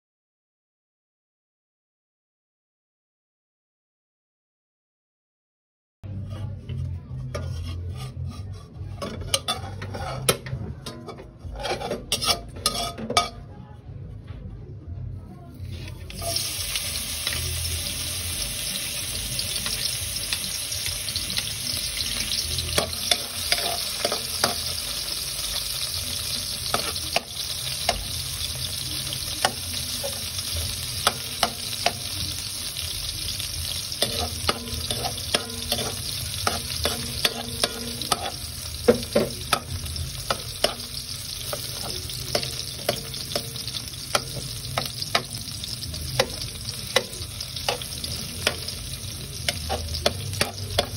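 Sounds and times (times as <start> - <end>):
metal spatula scraping a wok: 6.1 - 13.4, 15.6 - 50.9
garlic sizzling in hot oil: 16.0 - 50.9.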